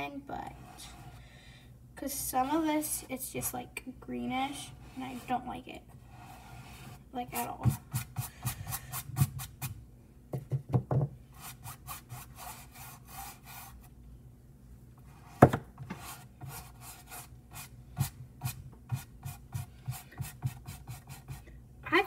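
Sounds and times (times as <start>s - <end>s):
paintbrush scrubbing on canvas: 4.6s - 9.7s, 11.4s - 13.9s, 15.9s - 21.4s.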